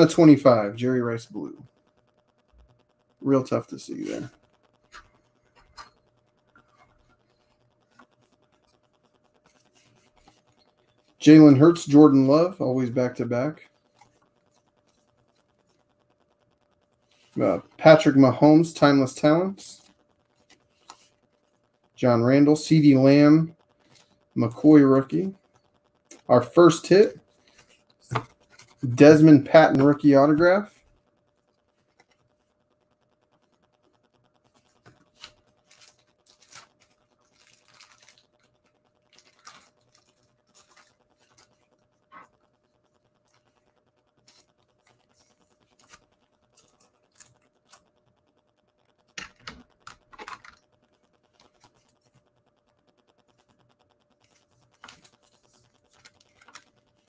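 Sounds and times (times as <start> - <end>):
faint steady hum: 0.0 - 57.0
cards and plastic sleeve crinkling: 19.0 - 21.3, 34.5 - 42.6, 43.2 - 48.0, 49.0 - 52.3, 54.2 - 57.0.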